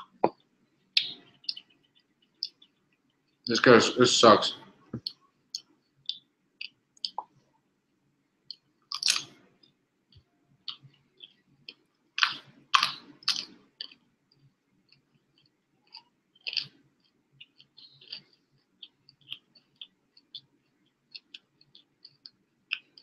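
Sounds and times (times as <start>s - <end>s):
person chewing crunchy food: 8.9s - 9.7s, 10.6s - 23.0s.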